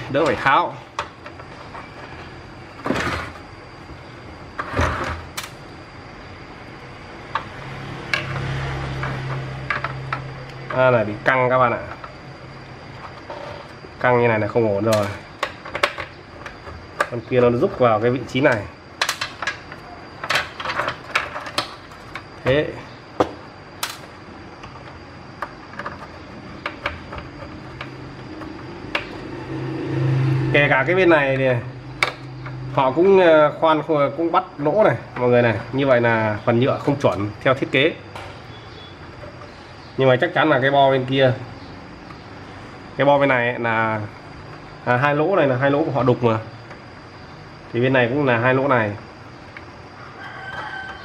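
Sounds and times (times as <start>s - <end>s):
plastic parts clicking and knocking: 14.8s - 17.8s, 18.5s - 22.6s, 23.2s - 29.2s
low hum: 27.1s - 33.0s.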